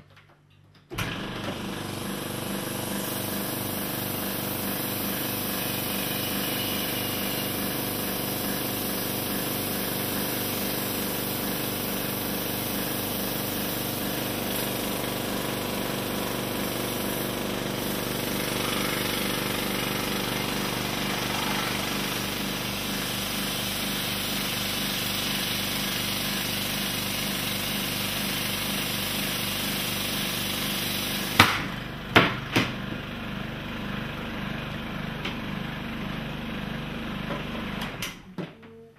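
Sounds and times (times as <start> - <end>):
air compressor running: 1.0 - 38.0
rubber glove bursting with a bang: 31.4 - 32.7.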